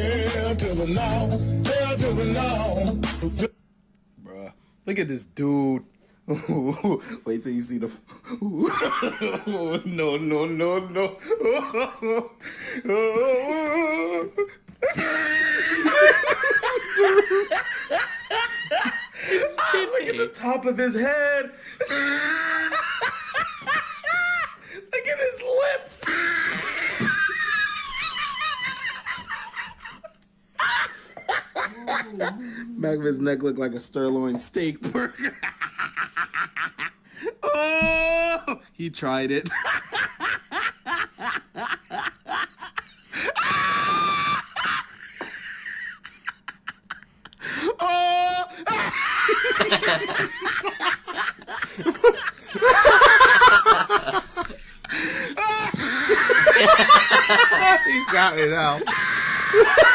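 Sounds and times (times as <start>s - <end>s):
man and boy laughing: 6.3s - 7.1s, 8.3s - 20.4s, 21.8s - 24.8s, 26.0s - 32.5s, 34.8s - 38.6s, 39.4s - 59.9s
high-pitched peal of laughter: 14.8s - 20.0s, 39.8s - 47.1s, 47.8s - 59.9s
high-pitched squealing laughter: 26.0s - 30.0s, 41.3s - 45.2s, 55.3s - 59.9s.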